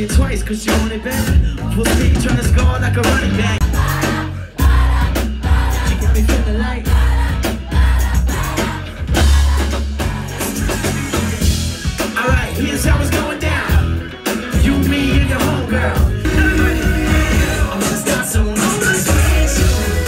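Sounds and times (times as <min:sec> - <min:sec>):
bass guitar: 0:00.0 - 0:20.0
drum kit with heavy kick: 0:00.0 - 0:20.0
electric guitar: 0:01.0 - 0:20.0
person singing: 0:12.2 - 0:20.0.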